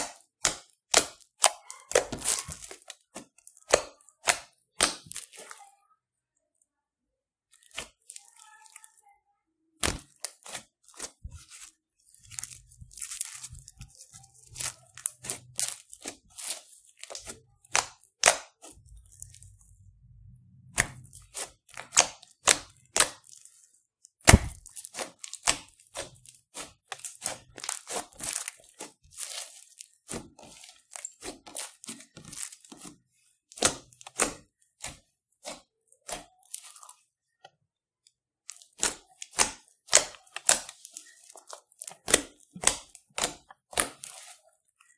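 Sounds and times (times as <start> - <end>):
slime crackling and popping: 9.8 - 19.6, 20.7 - 37.0, 38.4 - 44.5.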